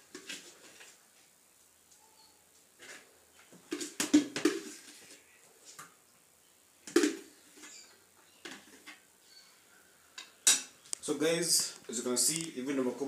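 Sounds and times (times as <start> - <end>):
plastic kitchenware knocks and clatters: 3.5 - 5.0, 6.8 - 7.3.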